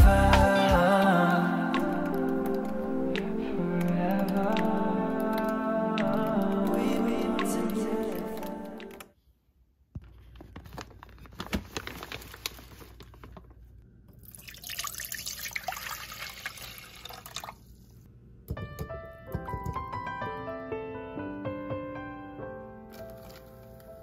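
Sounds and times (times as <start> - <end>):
piano music: 0.0 - 9.1, 18.6 - 24.0
soft music: 0.0 - 9.2, 18.5 - 24.0
soup pouring into saucepan: 14.2 - 17.7.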